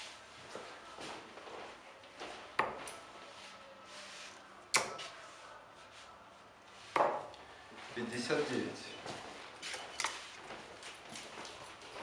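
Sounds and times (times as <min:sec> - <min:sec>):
darts striking dartboard: 0:04.7 - 0:05.0, 0:06.9 - 0:07.3.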